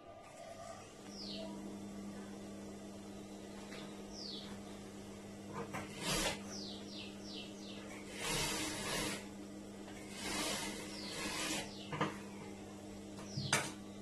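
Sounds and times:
sewing machine motor hum: 0.3s - 14.0s
sewing machine stitching: 5.6s - 6.8s, 8.0s - 9.3s, 9.9s - 12.0s.

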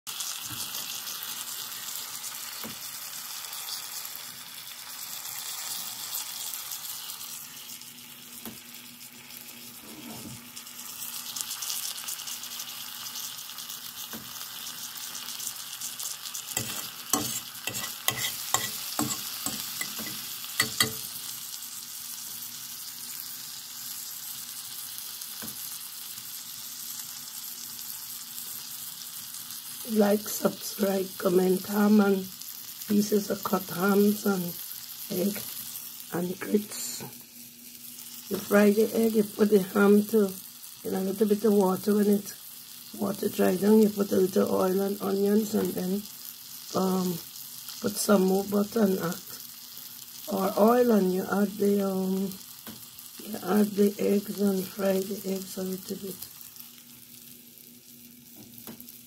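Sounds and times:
food sizzling in skillet: 0.1s - 59.0s
fork scraping pan: 16.6s - 21.1s.

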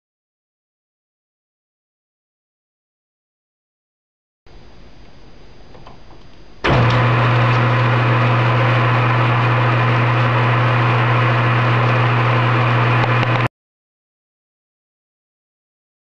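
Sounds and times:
lathe motor humming and whirring: 6.6s - 13.5s.

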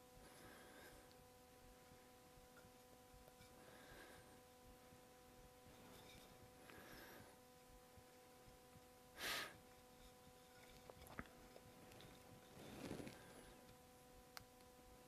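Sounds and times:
faint electrical hum: 0.0s - 15.0s
sharp hiss of breath: 9.2s - 9.6s
faint small clicks: 13.1s - 14.7s.

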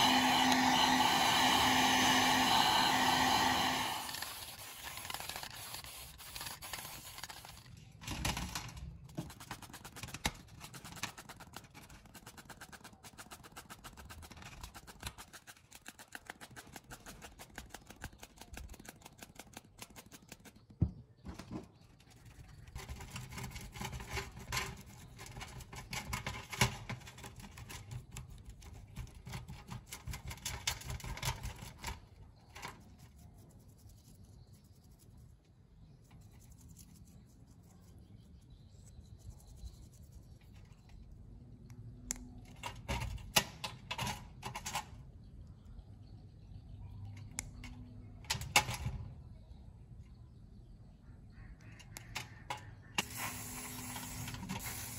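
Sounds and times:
brush scrubbing circuit board: 0.0s - 7.7s, 9.3s - 19.5s.

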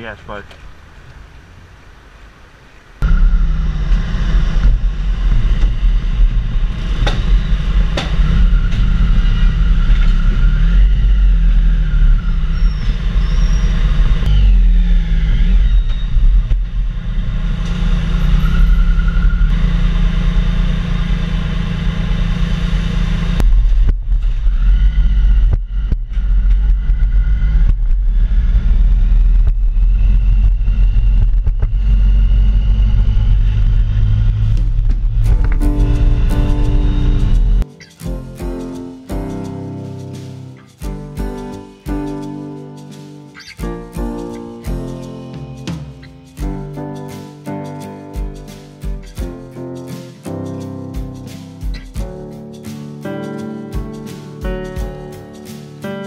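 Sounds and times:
motorcycle engines running: 3.0s - 37.6s.

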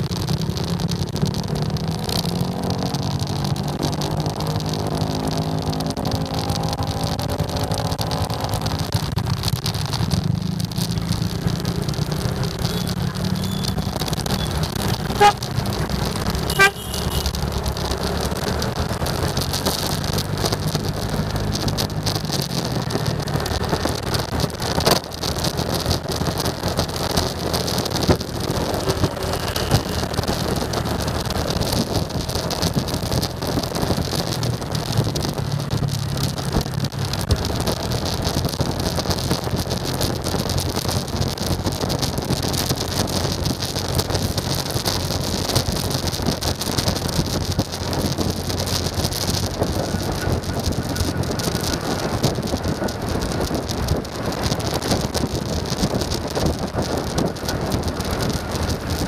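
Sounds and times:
short horn beeps: 16.5s - 17.3s
wind rushing over microphone: 17.3s - 59.0s.

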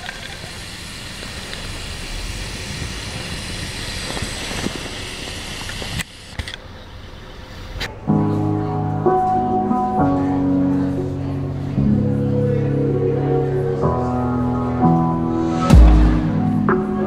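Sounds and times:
live band music: 15.2s - 17.0s.

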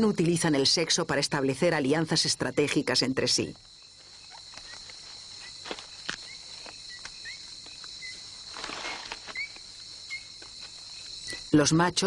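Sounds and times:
high insect chorus: 0.0s - 12.0s
rustle: 3.6s - 11.3s.

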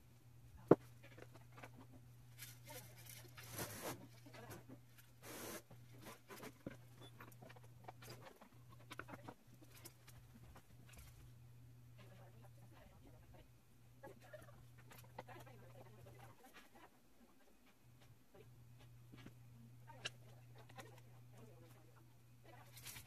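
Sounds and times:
short rustling scrapes: 2.4s - 4.4s.

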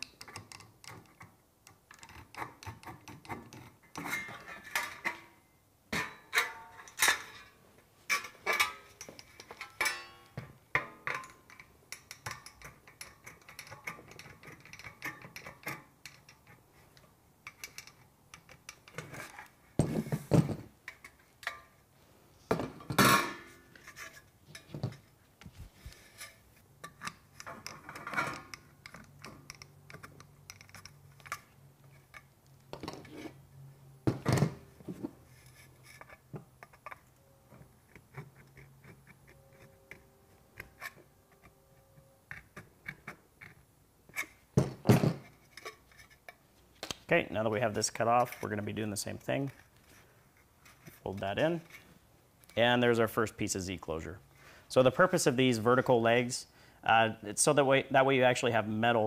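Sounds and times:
metallic clanks: 5.9s - 16.4s.

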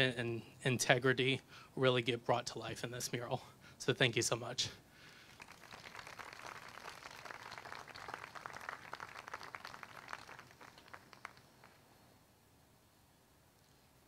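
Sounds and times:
audience applauding: 5.2s - 11.8s.

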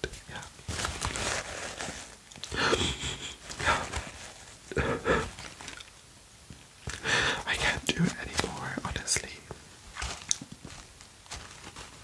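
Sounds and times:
man sniffling: 2.4s - 5.4s
man sobbing: 2.5s - 4.0s, 4.7s - 5.4s.

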